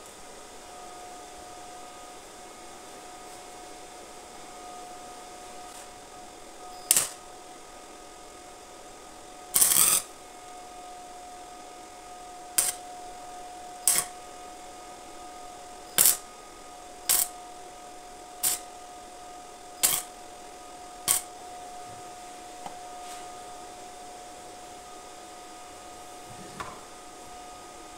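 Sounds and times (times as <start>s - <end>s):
arc welder crackling: 6.7s - 7.4s, 9.5s - 10.6s, 12.5s - 13.0s, 13.8s - 14.4s, 15.8s - 16.3s, 16.9s - 17.5s, 18.3s - 18.8s, 19.6s - 20.4s, 21.0s - 21.6s.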